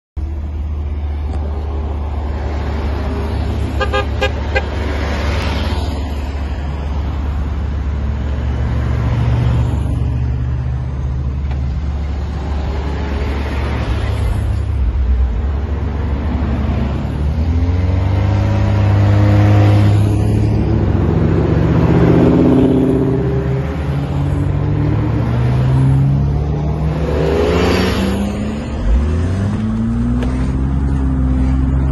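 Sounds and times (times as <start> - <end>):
low traffic rumble: 0.2 - 31.9
cars accelerating: 0.6 - 31.9
car horn toots: 3.8 - 4.8.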